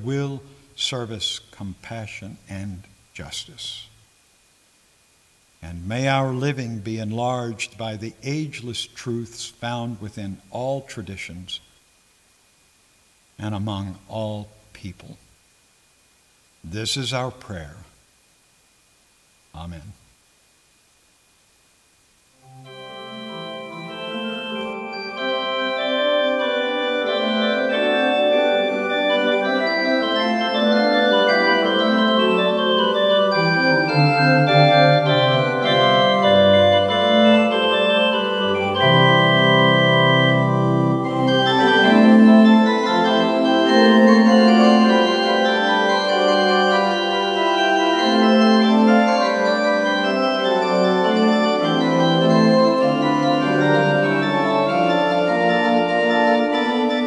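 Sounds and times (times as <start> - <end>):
church organ playing: 0.0 - 3.8, 5.6 - 11.2, 22.4 - 57.0.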